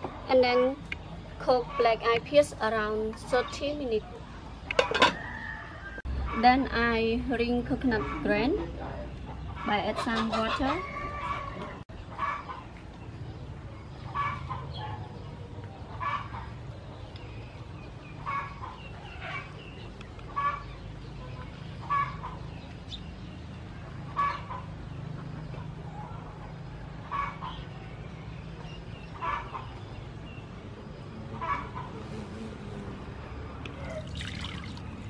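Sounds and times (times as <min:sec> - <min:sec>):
chickens clucking: 0:07.8 - 0:32.1.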